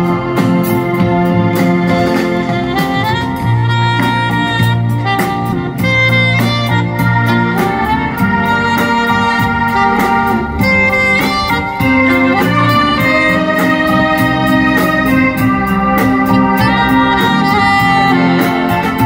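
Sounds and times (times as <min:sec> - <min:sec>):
drum kit beat: 0:00.0 - 0:19.0
keyboard backing: 0:00.0 - 0:19.0
saxophone melody: 0:00.0 - 0:19.0.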